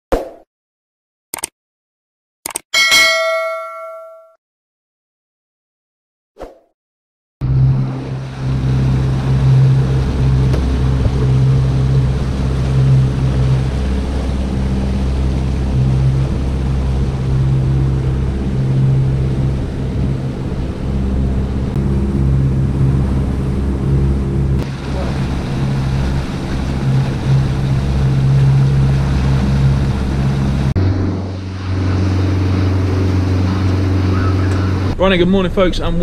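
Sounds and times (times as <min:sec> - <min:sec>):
motorboat engine humming: 0:07.4 - 0:36.0
wash of boat wake: 0:07.4 - 0:36.0.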